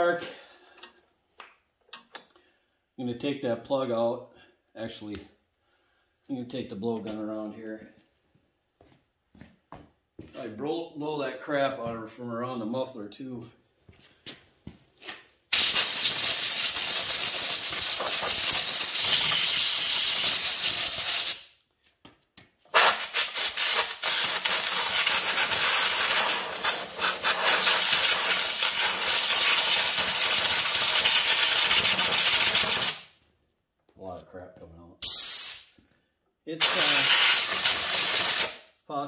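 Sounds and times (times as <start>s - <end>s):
compressed air blowgun hissing: 15.6s - 21.4s, 22.8s - 33.0s, 35.0s - 35.7s, 36.6s - 38.6s.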